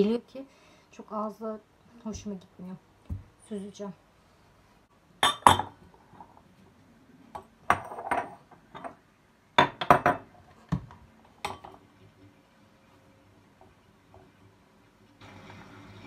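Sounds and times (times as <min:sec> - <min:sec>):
glassware knocking on stone countertop: 0:05.2 - 0:05.8, 0:09.6 - 0:10.3.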